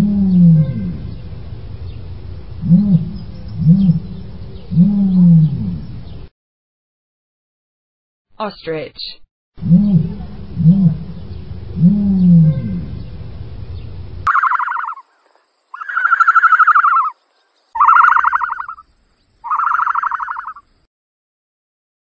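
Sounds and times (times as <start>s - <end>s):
ostrich low hooting call: 0.0s - 6.3s, 9.6s - 15.1s, 15.8s - 17.2s, 17.8s - 18.8s
ostrich raspy pulsing calls: 2.6s - 5.5s, 14.3s - 20.7s.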